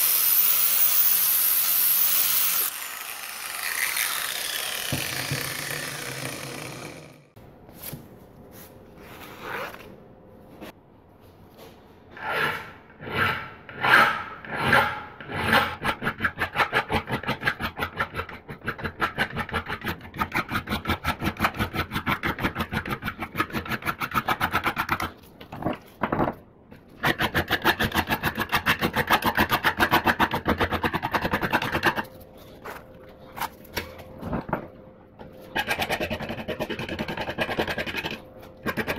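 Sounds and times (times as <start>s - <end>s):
file rasping on steel: 35.5s - 38.9s.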